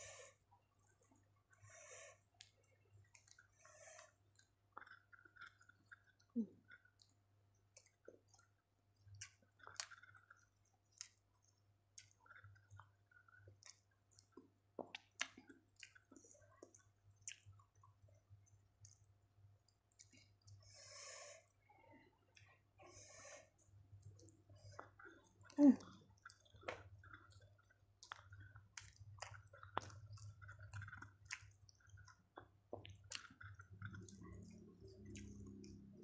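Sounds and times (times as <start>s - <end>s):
person chewing food: 0.0s - 36.0s
mouth clicks and wet smacks: 4.3s - 20.6s, 23.6s - 36.0s.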